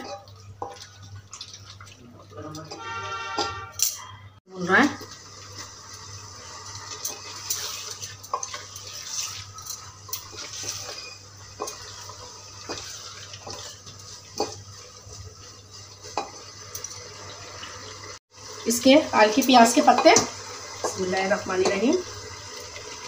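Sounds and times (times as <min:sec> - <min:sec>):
food sizzling: 0:00.0 - 0:23.0
spatula scraping metal pot: 0:02.7 - 0:04.0.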